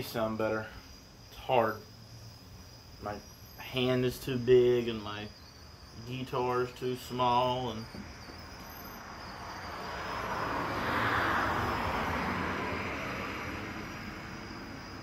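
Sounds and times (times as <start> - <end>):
crickets chirping: 0.0 - 15.0
car driving past: 8.1 - 15.0.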